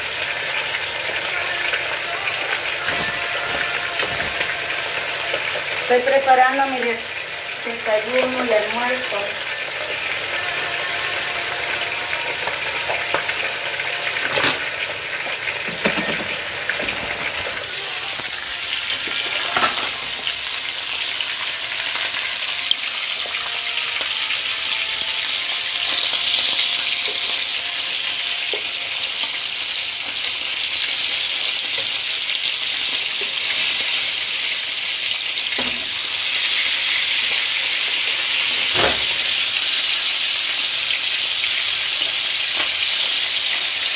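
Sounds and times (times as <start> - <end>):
fish sizzling in oil: 0.0 - 43.9.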